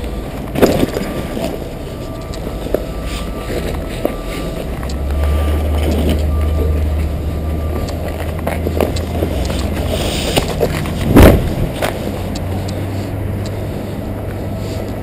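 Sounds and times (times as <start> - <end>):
steady low rumble: 0.0 - 15.0
loud thump: 11.1 - 11.5.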